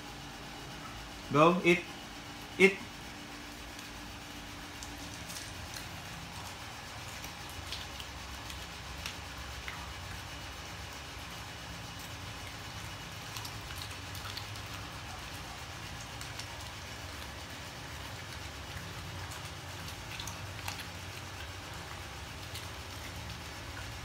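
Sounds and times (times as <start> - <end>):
dog chewing bones: 3.4 - 24.0.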